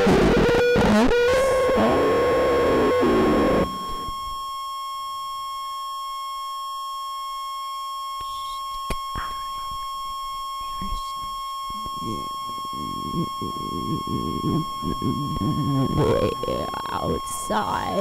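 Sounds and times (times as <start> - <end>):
steady sine-like tone: 0.0 - 18.0.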